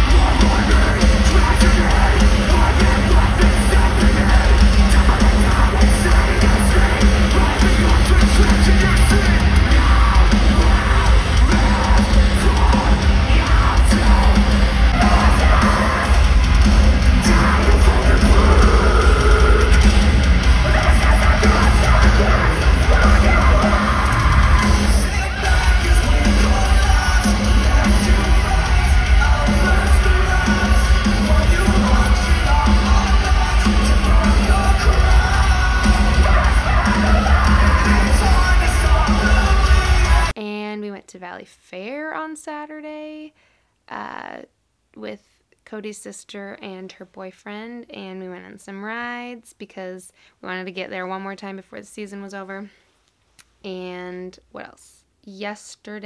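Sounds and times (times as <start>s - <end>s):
screamed vocals: 0.0s - 40.3s
live heavy metal band: 0.0s - 40.4s.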